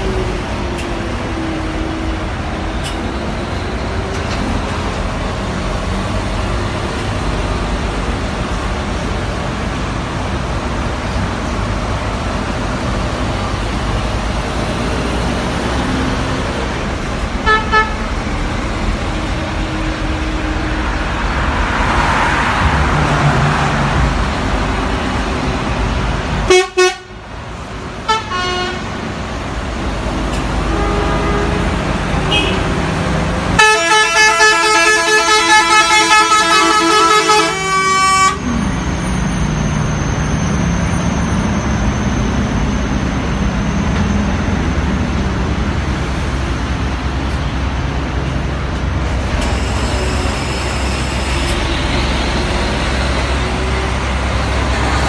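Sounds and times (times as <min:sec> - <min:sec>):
coach engines and tyre noise: 0:00.0 - 0:55.0
vehicle horns honking: 0:17.4 - 0:18.0, 0:26.5 - 0:27.2, 0:28.1 - 0:28.8, 0:30.6 - 0:32.8, 0:33.6 - 0:38.5.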